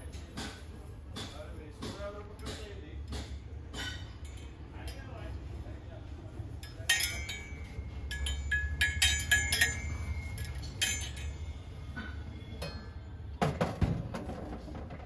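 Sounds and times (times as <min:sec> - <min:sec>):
brass utensils clinking: 0:06.6 - 0:13.0.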